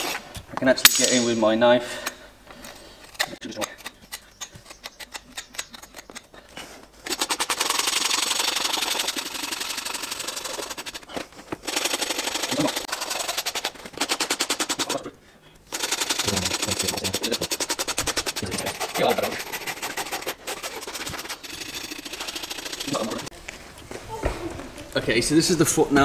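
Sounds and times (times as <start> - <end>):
hoof knife clicks and scrapes: 2.0 - 15.0, 15.6 - 23.4
rasp filing hoof: 3.0 - 15.0, 15.7 - 23.3.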